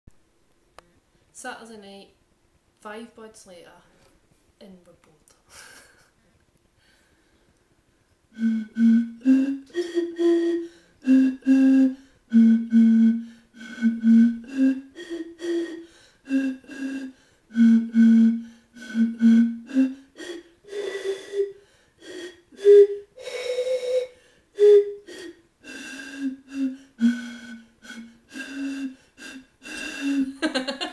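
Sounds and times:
tune blown on bottles: 8.3s - 30.8s.

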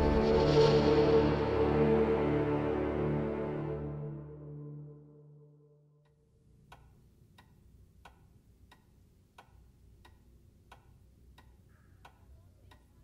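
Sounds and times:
low hum: 0.0s - 6.7s
clock ticking: 6.0s - 13.0s.

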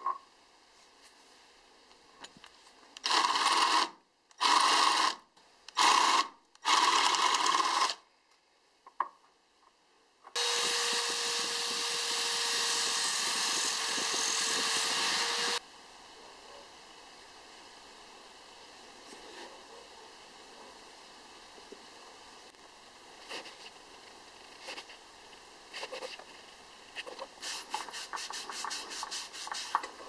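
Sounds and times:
electric drill boring wood: 3.0s - 5.2s, 5.8s - 8.0s, 10.4s - 15.6s
drill motor humming: 5.8s - 8.0s, 10.4s - 15.6s.

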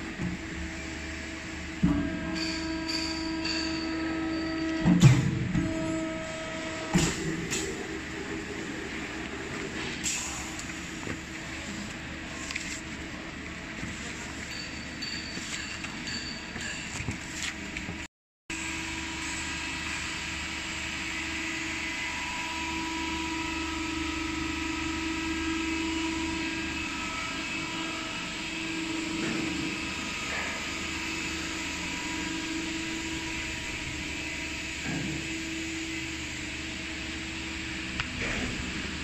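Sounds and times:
machinery drone: 0.0s - 11.0s.

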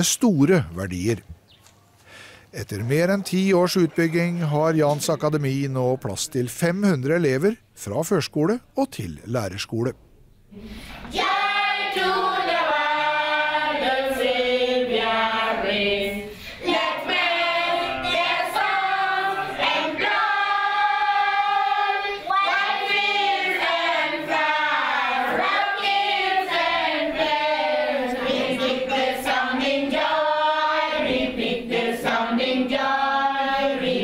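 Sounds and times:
children singing together: 11.0s - 34.0s.

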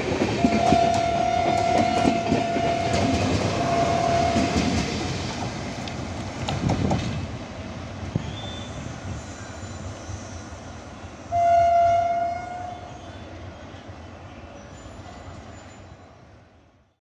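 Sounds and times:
diesel locomotive rumble: 0.0s - 9.2s
locomotive horn blast: 0.4s - 4.7s, 11.3s - 12.9s.

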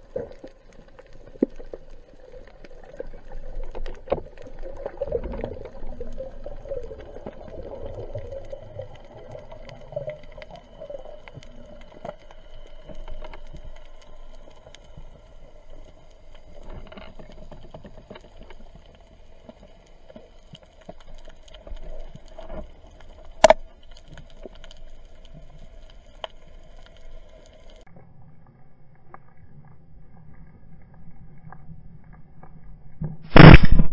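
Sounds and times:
steady underwater hum: 0.0s - 33.5s
low underwater rumble: 0.0s - 33.8s
small clicks and crackles: 0.0s - 33.9s
sharp loud click: 23.4s - 23.6s, 33.3s - 33.9s.

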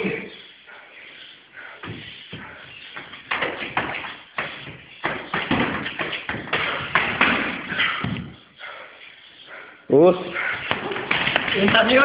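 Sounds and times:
gloved punches and kicks landing: 3.3s - 8.4s, 10.6s - 12.0s.

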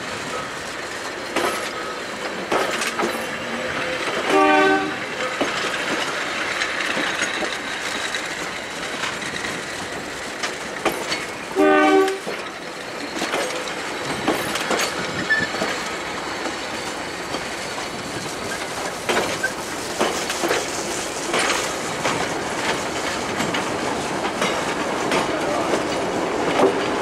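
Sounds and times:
train clanks and squeals: 0.0s - 27.0s
train wheels clicking over rail joints: 0.2s - 27.0s
train horn toot: 4.3s - 5.1s, 11.6s - 12.3s.

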